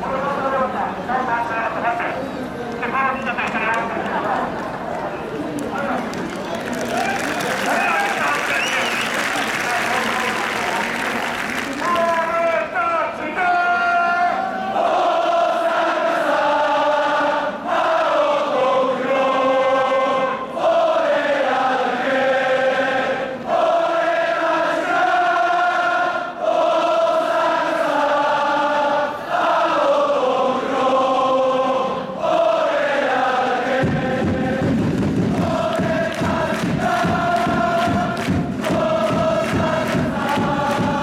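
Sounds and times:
low rough crowd noise: 0.0s - 41.0s
crowd singing in unison: 14.4s - 41.0s.

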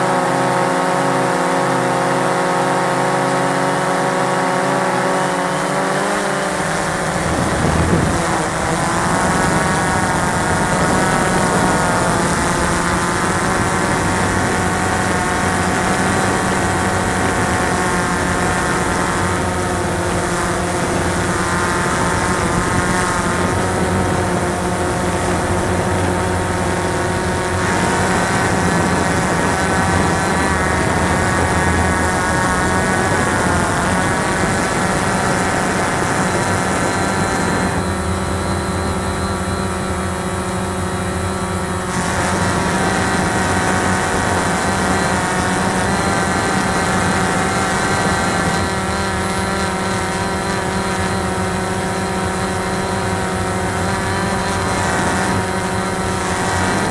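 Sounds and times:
drone propellers whining: 0.0s - 56.9s.

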